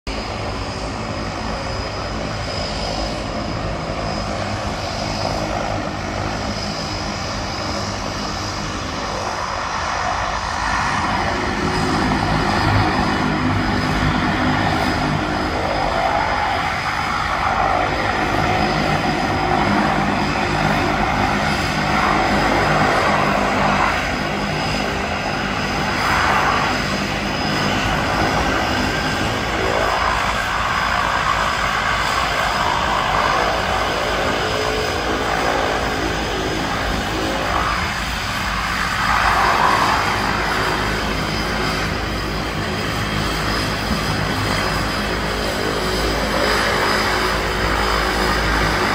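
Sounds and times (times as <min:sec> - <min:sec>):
turboprop engines running: 0:00.1 - 0:48.9.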